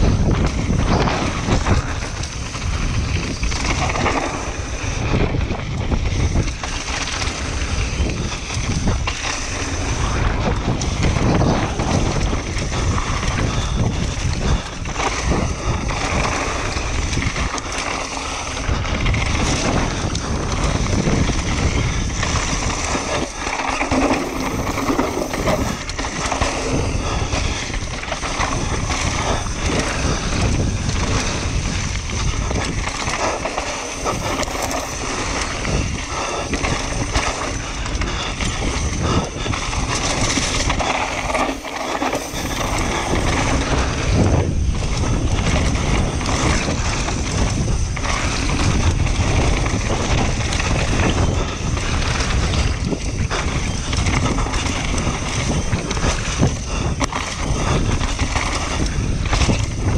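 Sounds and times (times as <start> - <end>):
bike rattling and knocking: 0.0 - 59.9
wind rush: 0.0 - 59.9
tyre noise on dirt: 19.4 - 37.6, 38.8 - 44.5.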